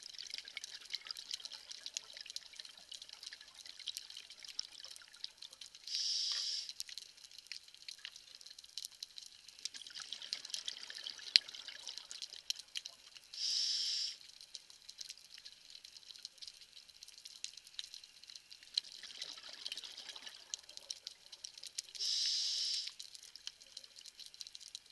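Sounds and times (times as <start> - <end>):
fine crackle of clicks: 0.0 - 13.4, 14.0 - 24.9
regulator inhalation hiss: 5.9 - 6.7, 13.4 - 14.2, 22.0 - 23.0.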